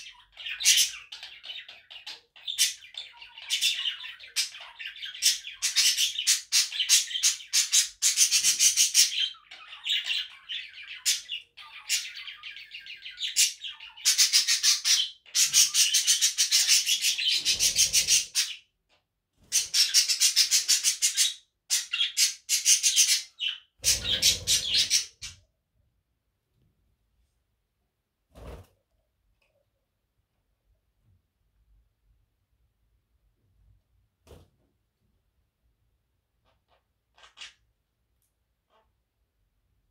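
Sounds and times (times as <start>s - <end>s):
budgerigars chattering: 0.0s - 18.6s, 19.5s - 25.4s.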